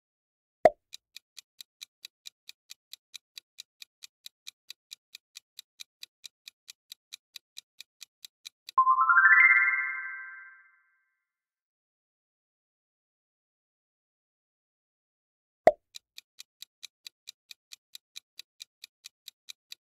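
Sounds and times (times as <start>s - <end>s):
clock-like ticking: 0.7s - 8.8s, 15.7s - 19.9s
rising chime tones: 8.8s - 10.7s.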